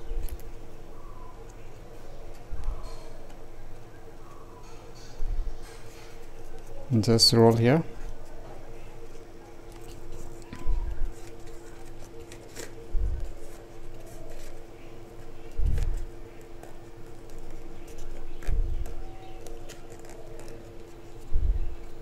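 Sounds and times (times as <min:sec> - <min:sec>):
steady hum: 0:00.0 - 0:22.0
paper rustling: 0:05.7 - 0:22.0.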